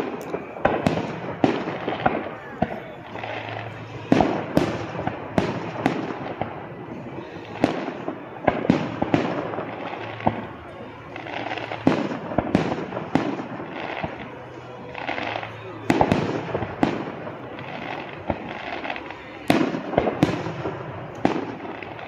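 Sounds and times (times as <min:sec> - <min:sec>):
fireworks bursting: 0:00.0 - 0:22.0.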